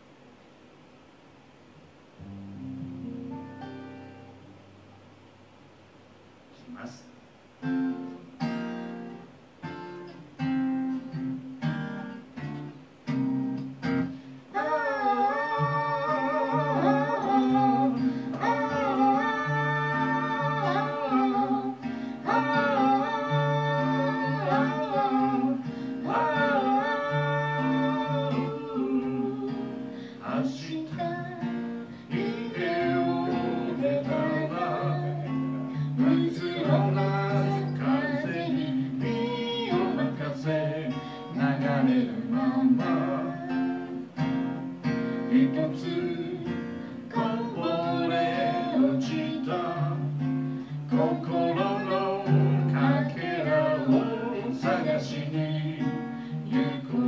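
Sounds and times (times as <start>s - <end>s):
acoustic guitar chords: 0.0s - 57.0s
singer breathing: 14.1s - 14.5s, 18.0s - 18.4s, 21.8s - 22.2s, 25.6s - 26.0s, 29.8s - 30.2s, 31.8s - 32.2s, 35.6s - 36.0s, 41.0s - 41.3s, 50.4s - 50.9s, 56.0s - 56.5s
man singing: 14.5s - 44.2s, 45.3s - 57.0s.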